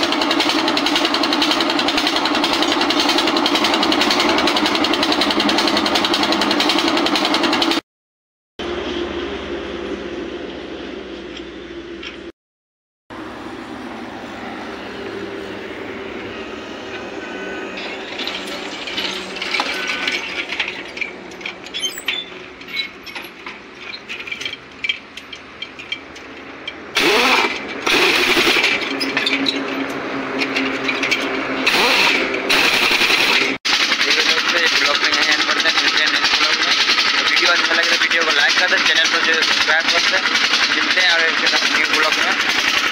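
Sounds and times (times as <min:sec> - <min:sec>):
pneumatic impact wrench rattling: 0:00.0 - 0:07.8, 0:17.8 - 0:42.9
steady mechanical hum: 0:08.6 - 0:12.3
tools clicking and clanking: 0:17.7 - 0:42.9.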